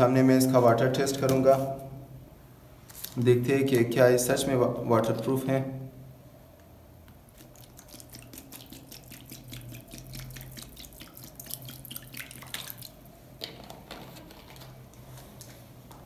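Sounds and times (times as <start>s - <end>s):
water dripping: 7.3s - 13.1s
water splashing into plastic tub: 7.4s - 13.0s.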